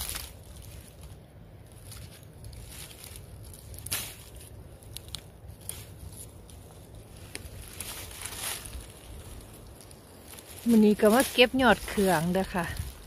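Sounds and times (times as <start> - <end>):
rustling of dry leaves and stems: 0.0 - 13.0
soft crackles: 0.0 - 13.0.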